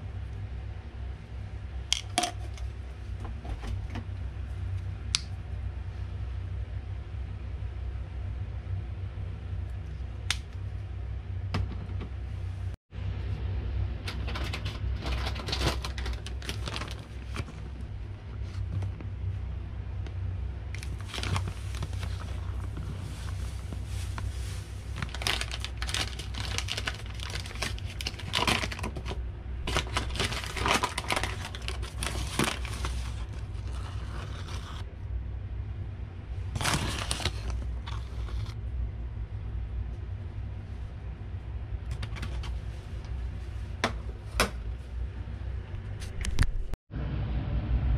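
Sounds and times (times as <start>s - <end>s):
low hum: 0.0s - 47.9s
packaging crinkling: 15.0s - 17.7s, 20.8s - 34.8s, 36.6s - 38.6s.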